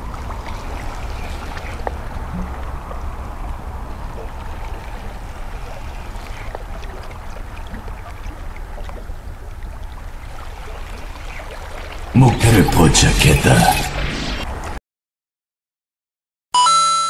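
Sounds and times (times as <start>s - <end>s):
steady low rumble: 0.0s - 10.4s.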